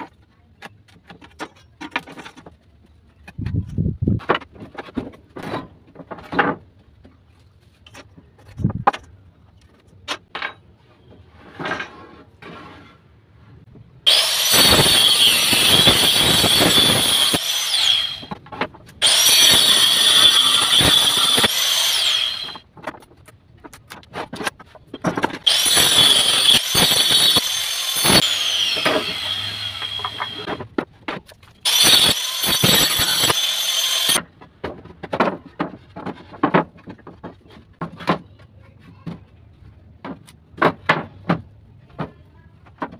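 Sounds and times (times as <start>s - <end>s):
circular saw cutting wood: 14.1s - 18.4s, 19.0s - 22.6s, 25.4s - 30.6s, 31.6s - 34.2s.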